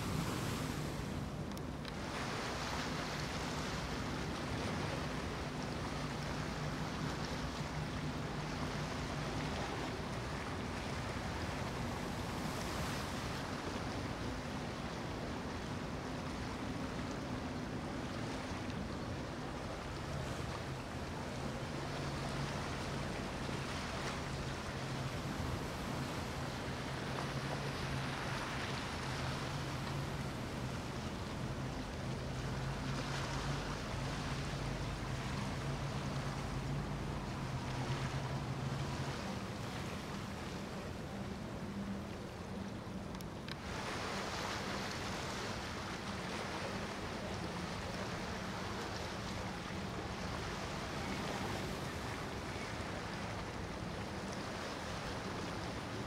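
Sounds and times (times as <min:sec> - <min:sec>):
wind on microphone: 0:00.0 - 0:01.4
wake rushing: 0:00.0 - 0:06.9, 0:20.1 - 0:40.7
boat engines droning: 0:00.0 - 0:56.0.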